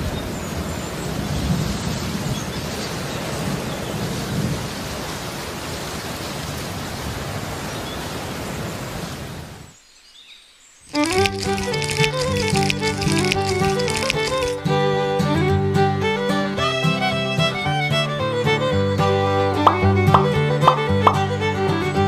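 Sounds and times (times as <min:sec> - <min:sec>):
rain hiss: 0:09.7 - 0:14.6.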